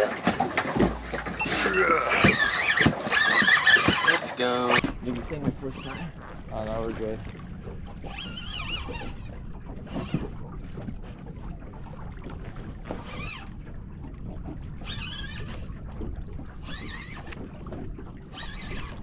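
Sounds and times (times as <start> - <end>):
wind rumble on microphone: 4.8 - 19.0.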